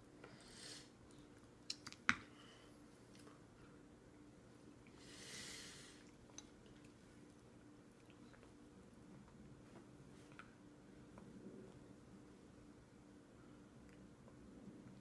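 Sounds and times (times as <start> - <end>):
soft breathy sound: 4.8 - 6.1.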